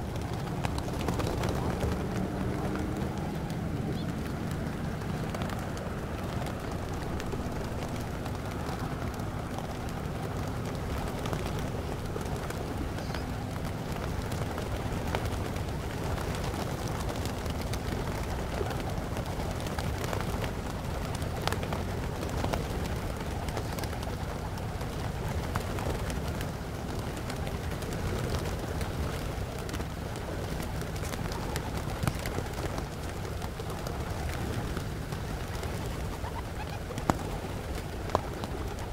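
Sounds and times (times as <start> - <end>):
wing flutters and clicks: 0.0 - 38.9
pigeons cooing: 30.9 - 38.9.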